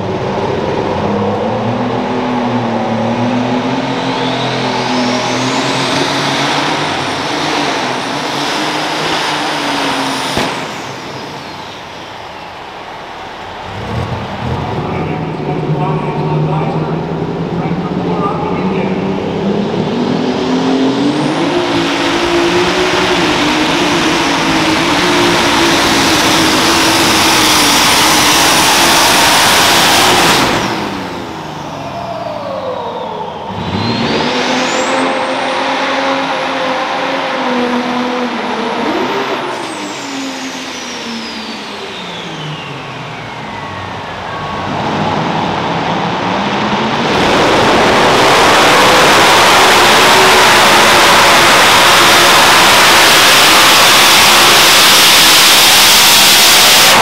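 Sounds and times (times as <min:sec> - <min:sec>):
tractor engines at full power: 0:00.0 - 0:57.0
high whistle: 0:31.6 - 0:35.4.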